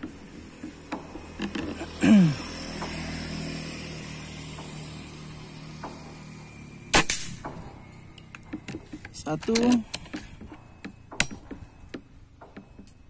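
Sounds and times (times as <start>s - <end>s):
air rifle shot: 6.9s - 7.7s.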